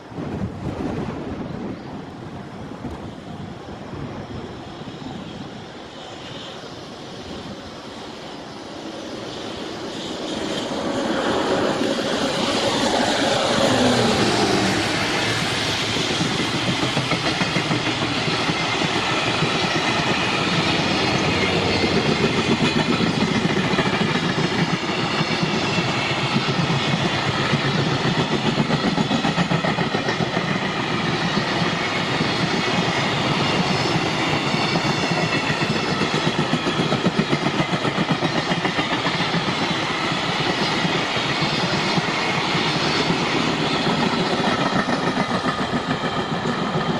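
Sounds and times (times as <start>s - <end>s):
electric locomotive whine: 0.0s - 46.9s
wheels clickety-clack over rail joints: 9.6s - 46.9s.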